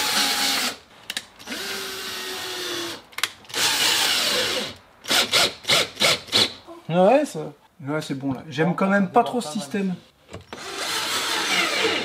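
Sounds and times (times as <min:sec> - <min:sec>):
drill driving screws: 0:01.4 - 0:06.6, 0:10.5 - 0:12.0.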